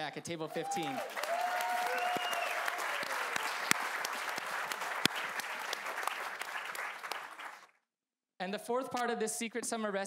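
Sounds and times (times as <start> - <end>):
audience applauding: 0.6 - 7.7.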